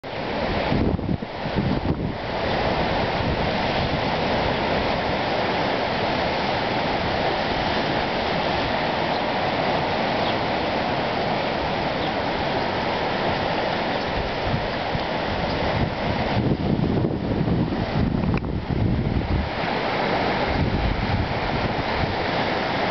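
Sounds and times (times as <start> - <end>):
surf washing on rocky shore: 0.0 - 22.9
wind bumps on microphone: 0.5 - 5.1, 14.1 - 22.4.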